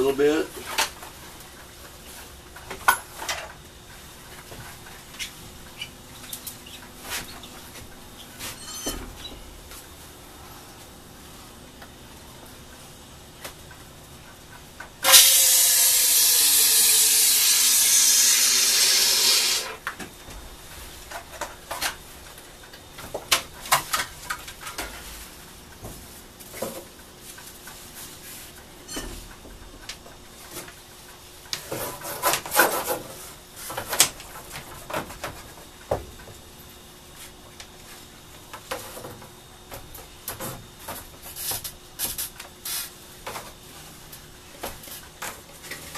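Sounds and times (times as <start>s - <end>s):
aerosol foam spraying hiss: 15.1s - 19.7s.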